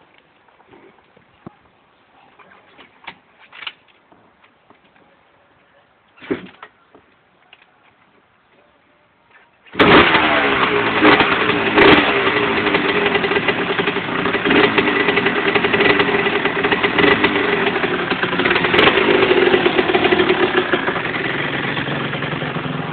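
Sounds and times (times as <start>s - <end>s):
motorcycle engine revving: 9.7s - 22.9s.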